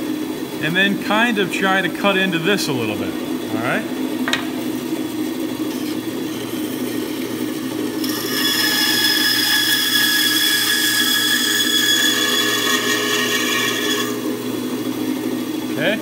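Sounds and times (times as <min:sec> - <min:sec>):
bandsaw motor hum: 0:00.0 - 0:16.0
blade whine cutting wood: 0:00.8 - 0:16.0.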